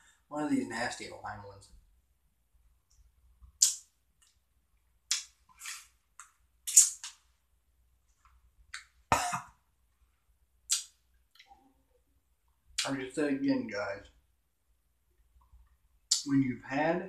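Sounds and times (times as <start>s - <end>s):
man's cough-like grunt: 9.1s - 9.6s.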